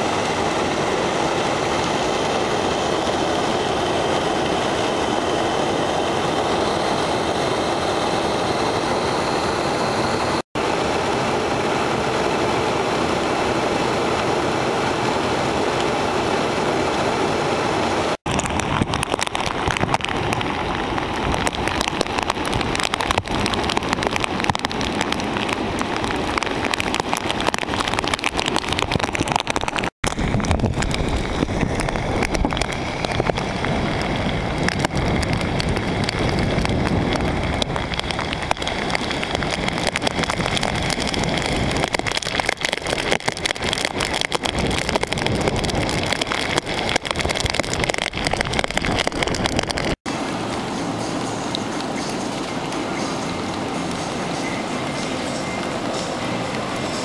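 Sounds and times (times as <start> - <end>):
waves washing against rocks: 17.7 - 57.0
wind buffeting microphone: 18.0 - 50.7.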